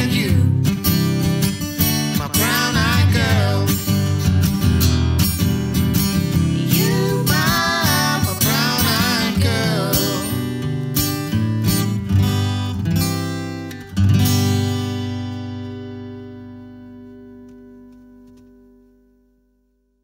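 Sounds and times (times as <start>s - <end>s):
man and woman singing: 0.0s - 0.7s, 2.1s - 4.2s, 6.4s - 10.6s
acoustic guitar playing: 0.0s - 19.3s.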